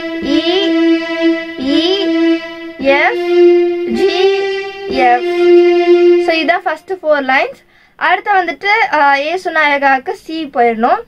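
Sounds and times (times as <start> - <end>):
electronic keyboard melody: 0.0 - 7.4.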